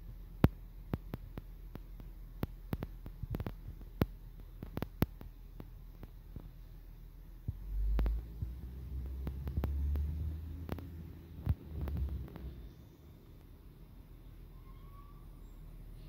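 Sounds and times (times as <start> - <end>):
sharp clicks: 0.4 - 6.5, 7.5 - 13.6.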